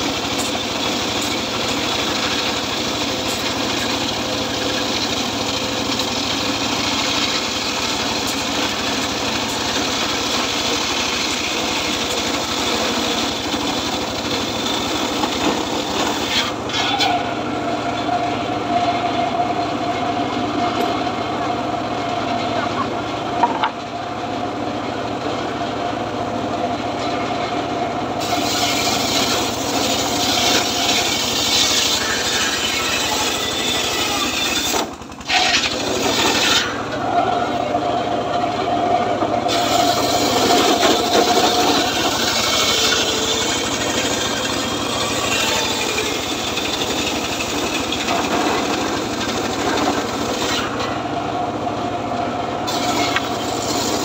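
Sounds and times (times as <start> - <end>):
circular saw ripping wood: 0.0 - 17.4, 28.2 - 37.1, 39.4 - 51.1, 52.7 - 54.0.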